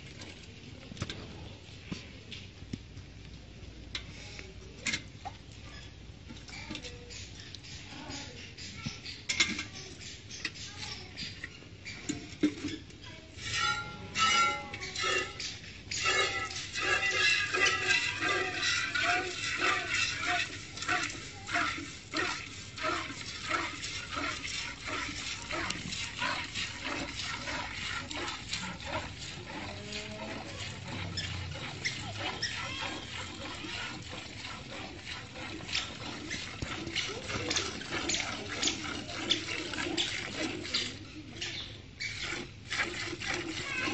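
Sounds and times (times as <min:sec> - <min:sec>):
milk squirting into metal pail: 0:11.5 - 0:43.9.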